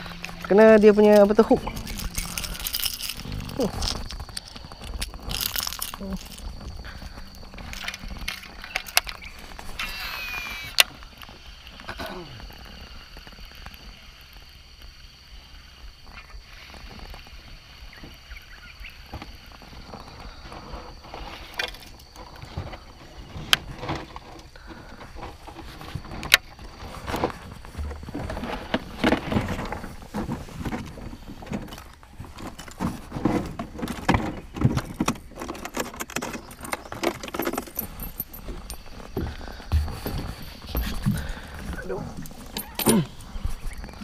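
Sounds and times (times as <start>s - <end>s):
fishing tackle clicking and jingling: 0.1s - 9.3s, 35.4s - 43.3s.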